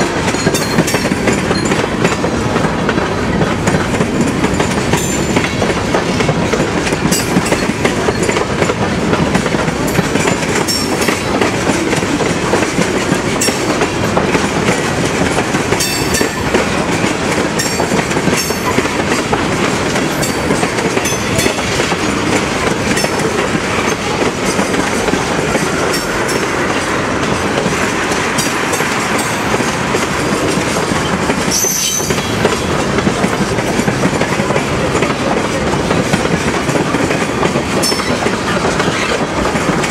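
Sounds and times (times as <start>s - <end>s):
train wheels rumbling on rail: 0.0s - 39.9s
wheels clanking over rail joints: 0.0s - 39.9s.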